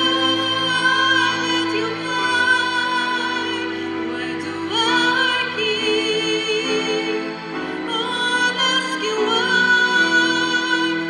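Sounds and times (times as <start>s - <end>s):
woman singing a ballad: 0.0s - 11.0s.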